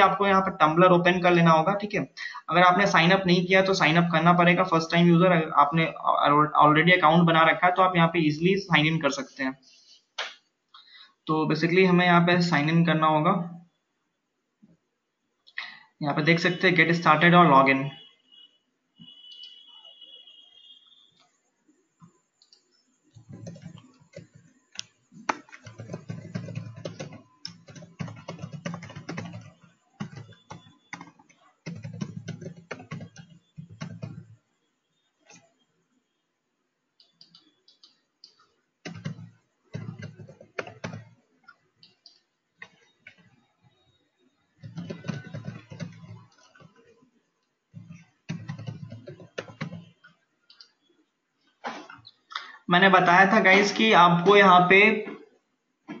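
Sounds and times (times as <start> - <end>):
typing on computer keyboard: 21.2 - 34.4, 37.0 - 43.5, 44.6 - 47.0, 47.7 - 50.8.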